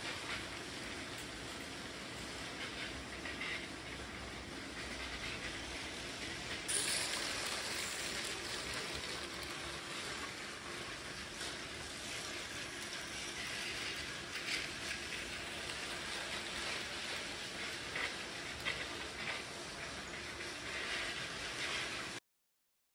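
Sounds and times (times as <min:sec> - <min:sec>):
toy train motors whirring: 0:00.0 - 0:22.2.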